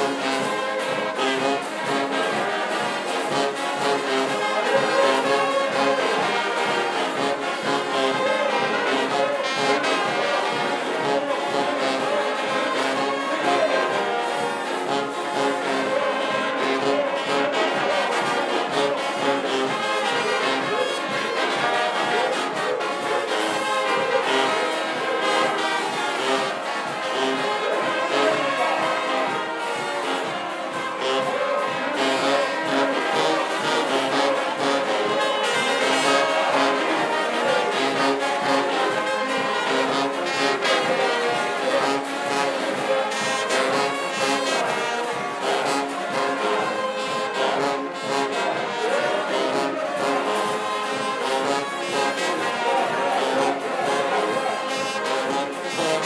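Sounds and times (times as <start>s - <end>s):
brass band playing: 0.0s - 56.0s.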